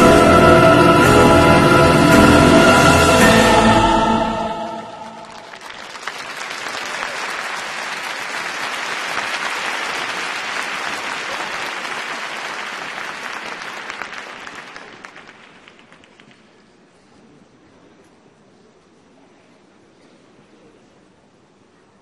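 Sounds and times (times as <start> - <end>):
program music: 0.0 - 5.5
arena crowd applauding: 5.1 - 16.7.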